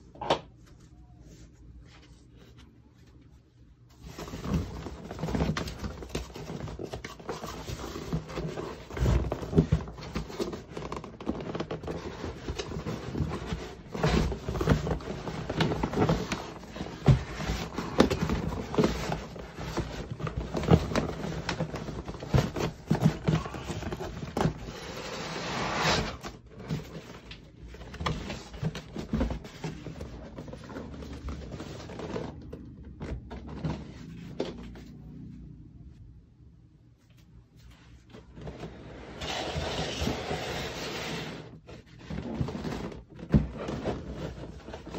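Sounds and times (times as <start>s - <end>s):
box scraping in cardboard carton: 11.9s - 27.1s, 38.4s - 44.9s.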